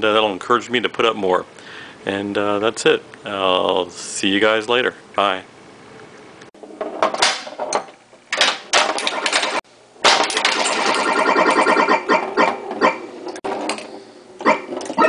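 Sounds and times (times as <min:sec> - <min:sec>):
pinball mechanical clicks and clatter: 0:06.6 - 0:15.0
pinball electronic tones: 0:08.7 - 0:09.6, 0:10.2 - 0:15.0.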